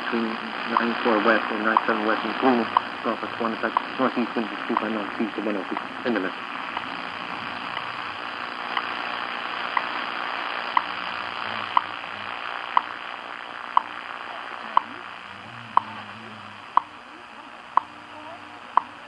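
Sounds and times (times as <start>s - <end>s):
shortwave static hiss: 0.0s - 19.0s
time signal ticks: 4.7s - 5.0s, 9.7s - 9.9s, 12.7s - 12.9s, 13.7s - 13.9s, 14.8s - 15.0s, 16.7s - 17.0s, 17.7s - 18.0s.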